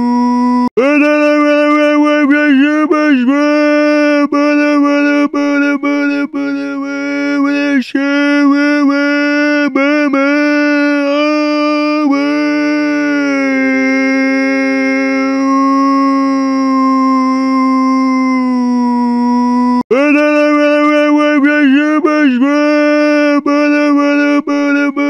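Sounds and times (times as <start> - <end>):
voice screaming on one note: 0.0 - 1.8, 9.0 - 20.6.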